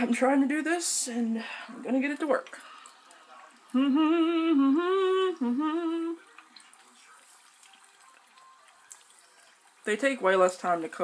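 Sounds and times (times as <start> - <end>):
oil sizzling from deep-frying: 0.0 - 11.0
woman humming: 3.7 - 6.2.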